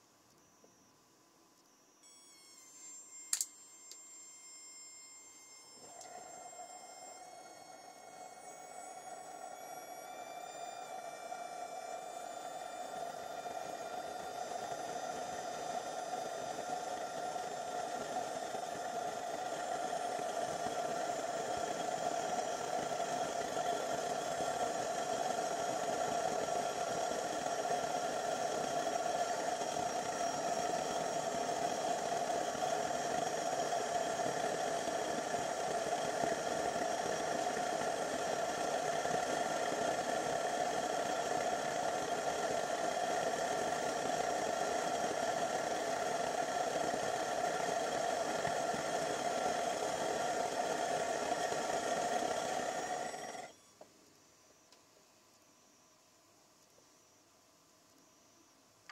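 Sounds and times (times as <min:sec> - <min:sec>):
fan whine: 0:00.0 - 0:53.9
gas burner flame roaring: 0:07.2 - 0:53.5.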